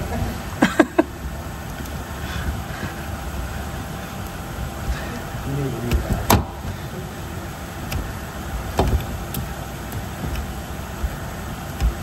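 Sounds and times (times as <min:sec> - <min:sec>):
steady low rumble: 0:00.0 - 0:12.0
sharp knocks: 0:05.8 - 0:06.8, 0:08.7 - 0:10.6.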